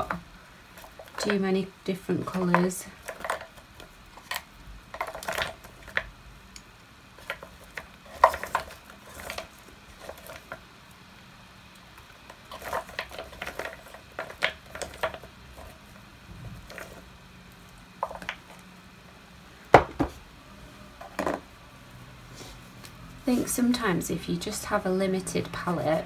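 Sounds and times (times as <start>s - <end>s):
wax crayons rattling in wooden box: 0.0s - 6.1s, 7.1s - 10.7s, 12.0s - 16.0s, 16.6s - 17.1s, 18.0s - 18.6s.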